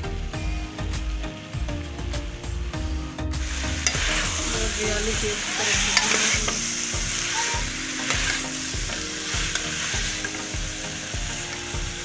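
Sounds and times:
vegetables sizzling in a pan: 0.0 - 12.0
metal spatula stirring: 3.5 - 11.9.

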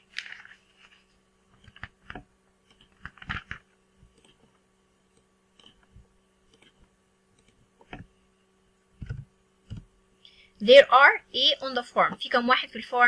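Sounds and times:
faint electrical hum: 0.0 - 13.0
mouse and keyboard clicks: 1.6 - 4.5, 5.1 - 8.1.

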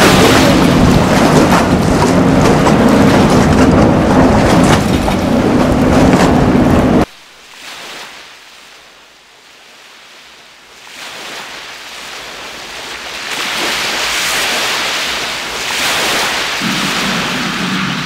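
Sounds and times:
wind on microphone: 0.0 - 7.1, 14.5 - 18.0
choppy water: 0.0 - 18.0.

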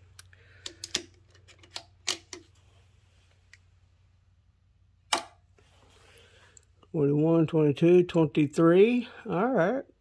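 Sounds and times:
faint low hum: 0.0 - 8.1
small metallic clicks: 0.1 - 2.5.

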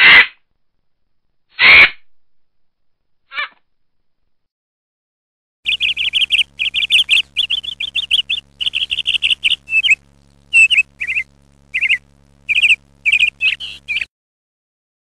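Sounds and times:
lovebird chirping: 5.7 - 14.1.

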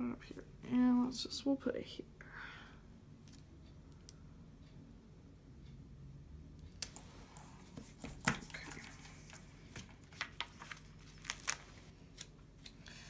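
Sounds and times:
paper rustling: 7.7 - 12.3.

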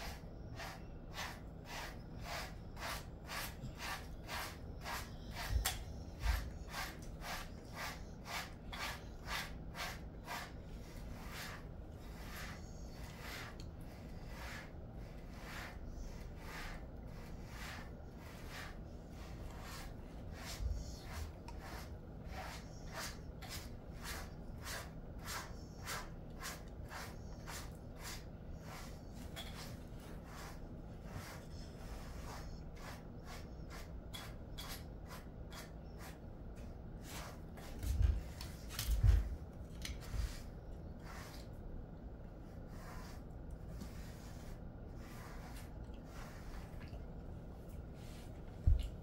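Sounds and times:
brush strokes through fur: 0.0 - 41.6, 42.4 - 49.0.

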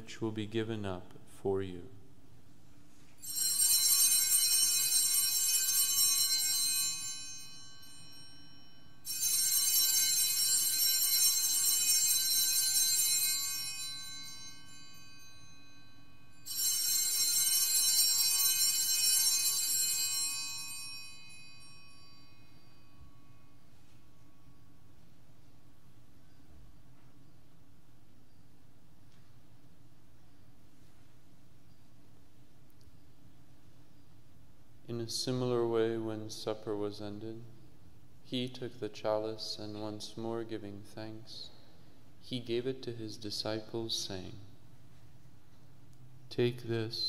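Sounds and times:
altar bells ringing: 3.1 - 29.5.

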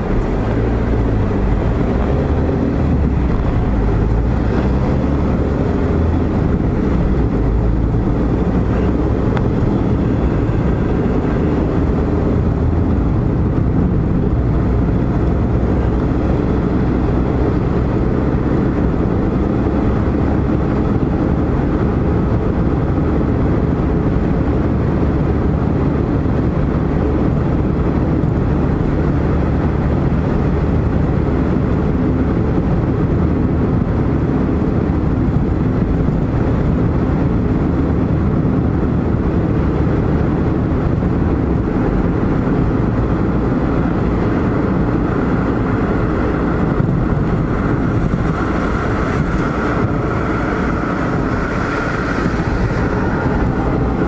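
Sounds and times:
car engine hum: 0.0 - 54.0
tyres rumbling on road: 0.0 - 54.0.

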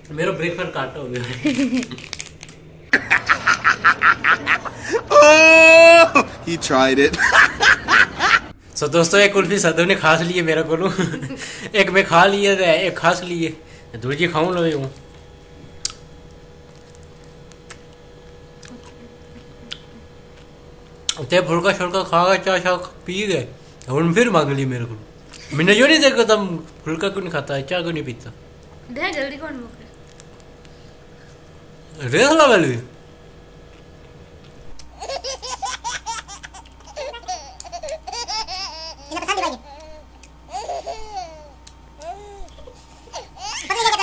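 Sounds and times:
faint steady hum: 0.0 - 44.0
woman laughing: 1.3 - 2.0, 2.9 - 6.4, 7.1 - 8.5, 18.7 - 20.2
mouth clicks and smacks eating: 18.6 - 21.2.

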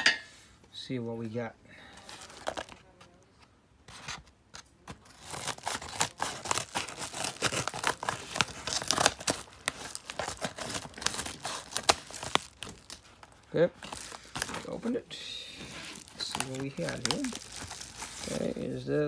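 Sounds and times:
paper crinkling and tearing: 4.9 - 15.0, 15.6 - 19.0.

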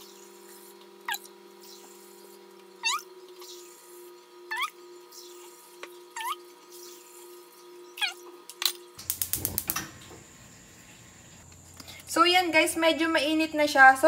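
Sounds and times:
steady hum: 8.8 - 12.4
gas stove igniter clicking: 9.0 - 10.3.

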